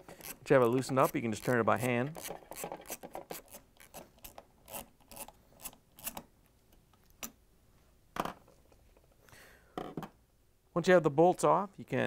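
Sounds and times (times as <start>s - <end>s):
metal bolt clicking and rubbing: 0.0s - 6.3s.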